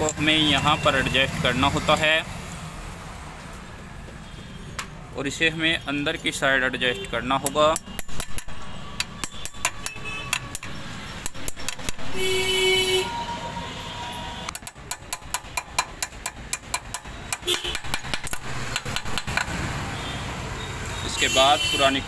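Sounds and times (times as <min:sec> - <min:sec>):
street traffic hum: 0:00.0 - 0:22.0
vehicle horn: 0:12.1 - 0:14.5, 0:17.4 - 0:17.8, 0:20.9 - 0:22.0.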